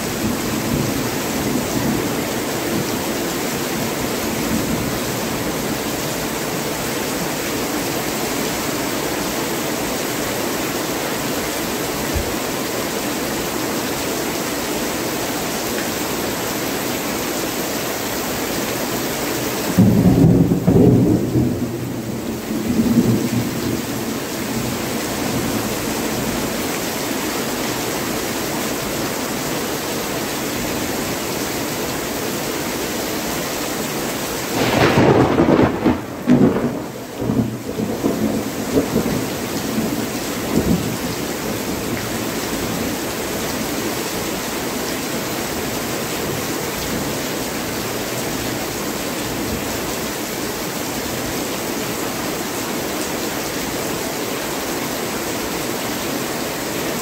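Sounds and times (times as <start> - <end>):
heavy rain pouring: 0.0 - 57.0
thunder rumbling: 19.8 - 24.7, 34.6 - 40.0.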